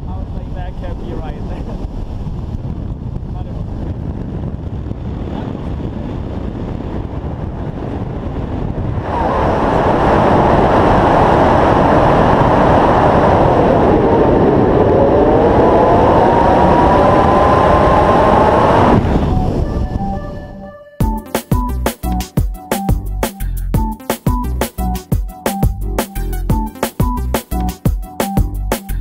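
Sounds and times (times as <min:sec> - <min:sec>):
wind rushing over microphone: 0:00.0 - 0:20.8.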